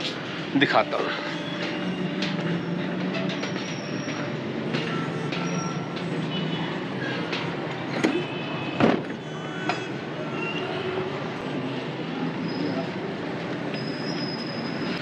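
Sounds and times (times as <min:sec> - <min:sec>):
thin high squealing: 0:00.9 - 0:05.9, 0:13.7 - 0:15.0.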